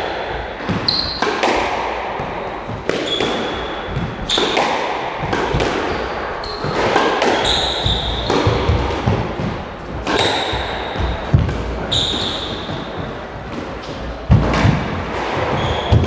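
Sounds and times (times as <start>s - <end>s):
squash ball cracking off rackets: 0.7s - 16.0s
shoes squeaking on wooden floor: 10.1s - 13.2s, 15.5s - 16.0s.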